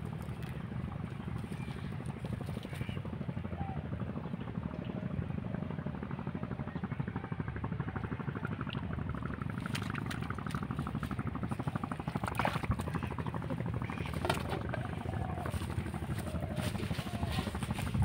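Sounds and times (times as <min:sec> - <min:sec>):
engine chugging steadily: 0:00.0 - 0:18.0.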